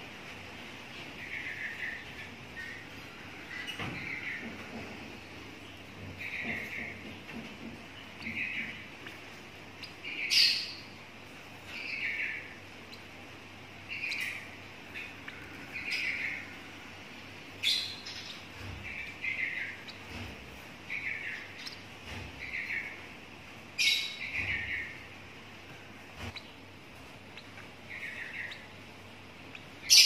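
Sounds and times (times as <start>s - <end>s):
bird chick harsh chirping: 8.0s - 16.8s, 26.2s - 30.0s.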